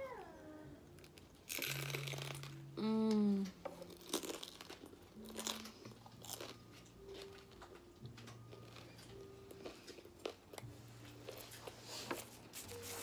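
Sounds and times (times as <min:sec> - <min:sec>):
crunching fried food: 0:01.1 - 0:02.5, 0:03.8 - 0:07.8
person humming mmm: 0:01.7 - 0:04.0.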